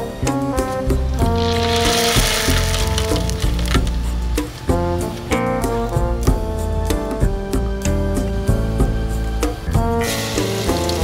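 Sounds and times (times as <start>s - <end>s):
background music: 0.0s - 11.0s
hot oil sizzling and crackling: 1.1s - 4.8s, 10.0s - 11.0s.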